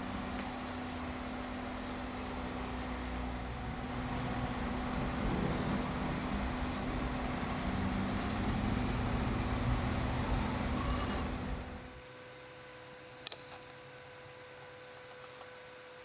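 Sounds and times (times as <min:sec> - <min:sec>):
meat sizzling and crackling: 0:00.0 - 0:12.0
cooktop hum: 0:00.0 - 0:14.2.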